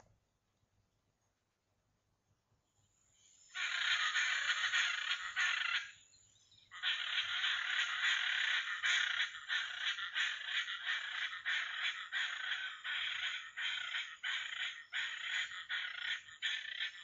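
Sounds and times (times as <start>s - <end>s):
harsh animal calls: 3.5s - 6.0s, 6.7s - 17.0s.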